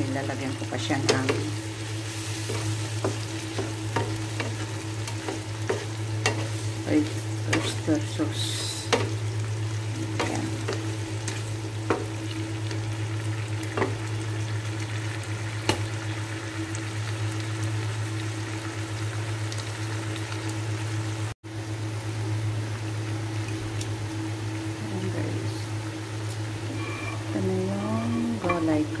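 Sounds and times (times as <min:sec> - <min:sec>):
steady low hum: 0:00.0 - 0:15.3, 0:21.5 - 0:29.0
shrimp sizzling in frying pan: 0:00.0 - 0:29.0.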